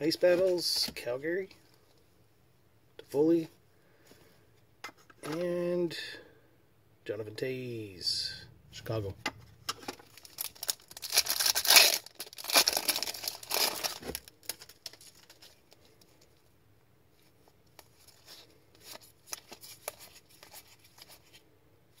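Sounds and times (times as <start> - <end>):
card pack wrapper tearing: 10.0 - 15.6
cards rustling in hands: 17.2 - 21.6.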